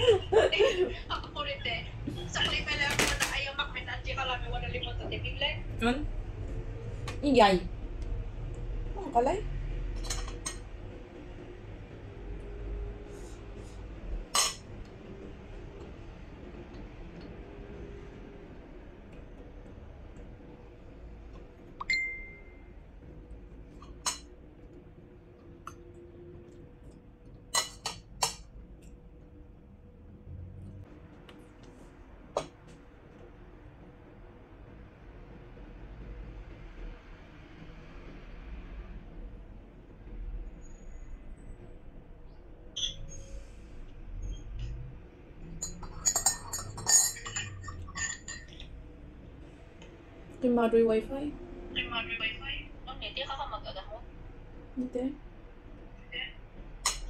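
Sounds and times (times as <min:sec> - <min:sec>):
spoon clinking ceramic bowl: 0:45.6 - 0:48.7.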